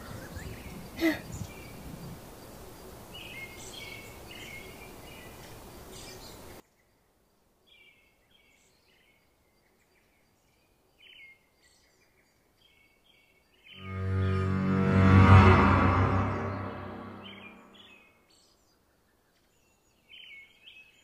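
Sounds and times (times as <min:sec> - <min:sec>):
steady outdoor hiss: 0:00.0 - 0:08.4
music: 0:13.8 - 0:17.8.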